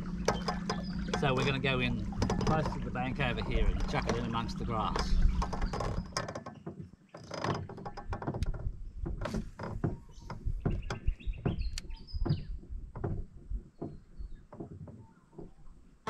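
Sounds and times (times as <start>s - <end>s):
bird chirping: 0.0s - 2.8s
fishing gear knocking and clicking: 0.0s - 15.5s.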